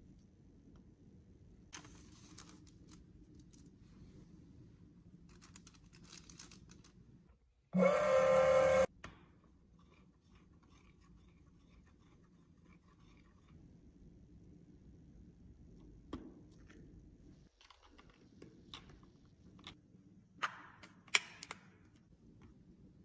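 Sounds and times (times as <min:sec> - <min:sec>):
tissue paper crinkling: 0:01.8 - 0:04.0, 0:05.3 - 0:07.0
loud multi-pitched tone: 0:07.8 - 0:08.9.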